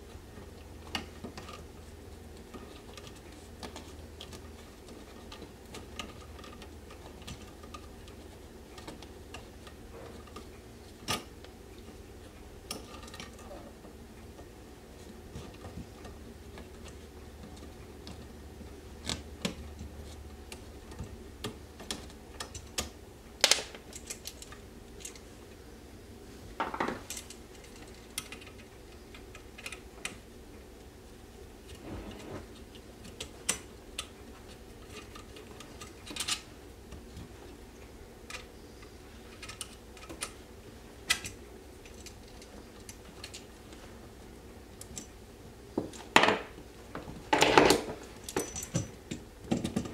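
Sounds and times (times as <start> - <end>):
small metallic clicks and clinks: 48.2 - 49.9.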